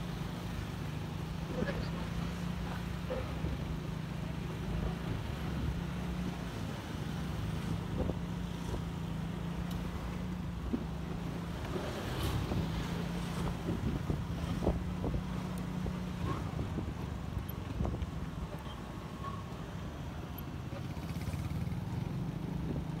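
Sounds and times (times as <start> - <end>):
motorbike traffic: 0.0 - 23.0
wind noise on microphone: 12.0 - 18.4
motorcycle engine running: 20.6 - 23.0.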